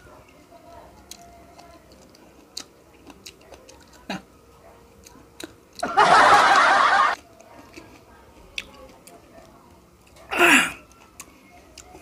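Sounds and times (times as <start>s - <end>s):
wet chewing: 1.0s - 4.3s, 4.9s - 6.0s, 7.1s - 12.0s.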